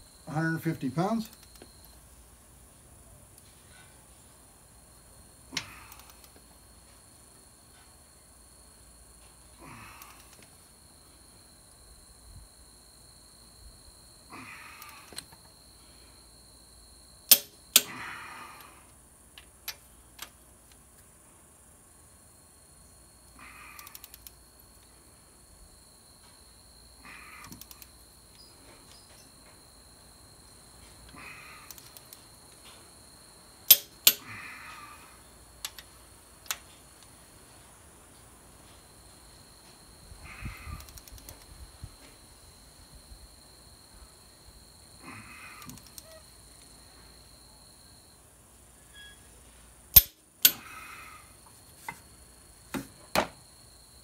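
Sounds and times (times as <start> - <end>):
torque wrench clicks: 5.6 - 6.3, 17.3 - 17.9, 23.8 - 24.4, 27.4 - 27.9, 31.7 - 32.2, 33.7 - 34.2, 40.8 - 41.4, 45.6 - 46.1, 49.9 - 50.6
wrench ratchet ticks: 23.8 - 24.4, 27.4 - 27.9, 31.7 - 32.2, 33.7 - 34.2, 40.8 - 41.4, 50.0 - 50.6
hard breathing: 31.0 - 32.0.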